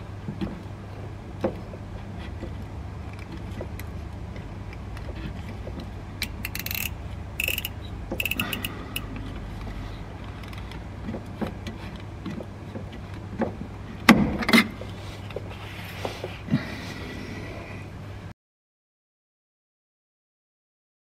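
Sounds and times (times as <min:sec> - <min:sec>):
hand tool clicking and rattling: 0:06.2 - 0:09.1.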